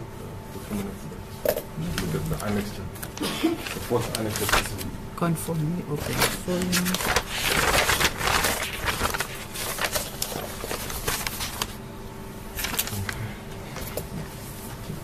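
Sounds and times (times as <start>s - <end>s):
papers rustling: 2.0s - 4.9s, 5.9s - 11.8s, 12.5s - 13.2s.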